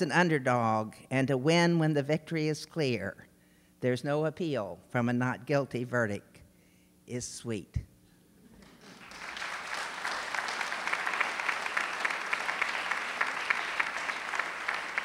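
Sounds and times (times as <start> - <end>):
audience applauding: 8.6 - 15.0.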